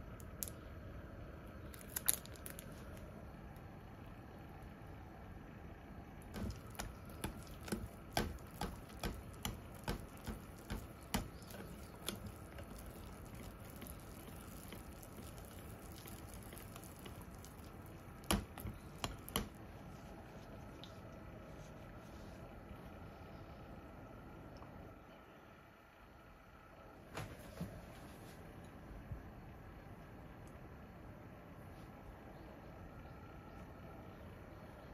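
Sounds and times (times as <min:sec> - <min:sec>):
whisk squishing batter: 0:06.2 - 0:21.0
whisk clicking on glass: 0:06.3 - 0:19.5.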